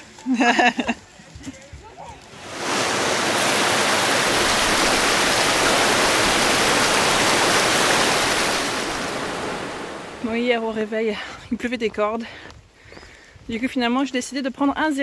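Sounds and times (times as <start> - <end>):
water rushing over rapids: 2.2 - 10.4.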